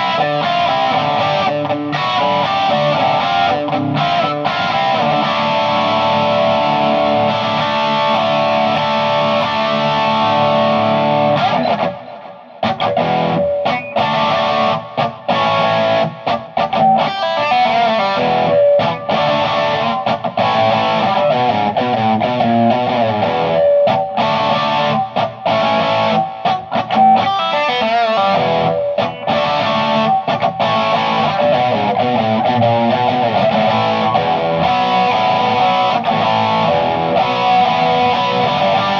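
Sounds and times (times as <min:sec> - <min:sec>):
distorted electric guitar chords: 0:00.0 - 0:38.9.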